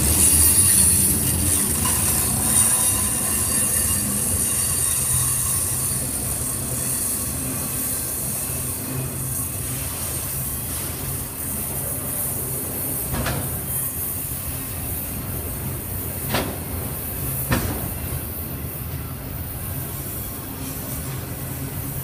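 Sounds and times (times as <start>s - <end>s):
sharp train clanks: 0.0s - 22.0s
train wheels rumbling on rail: 0.0s - 22.0s.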